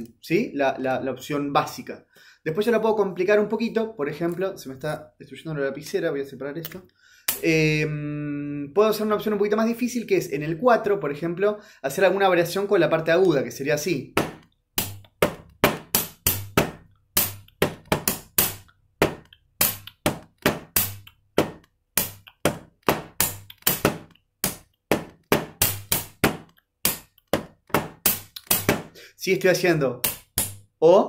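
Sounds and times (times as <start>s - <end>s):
palm slaps on glass table: 14.2s - 28.9s, 30.0s - 30.6s
plastic pen tapping: 14.2s - 28.9s.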